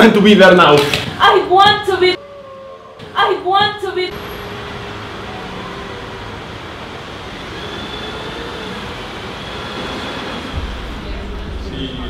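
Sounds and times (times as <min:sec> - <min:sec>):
railway noise: 0:01.9 - 0:12.0
traffic on wet road: 0:04.1 - 0:11.6.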